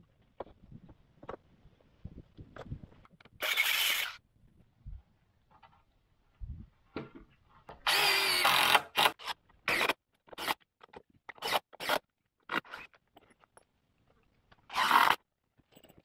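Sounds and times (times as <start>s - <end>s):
cordless drill driving screws: 3.4s - 4.2s, 7.8s - 10.6s, 11.3s - 12.0s, 14.7s - 15.2s.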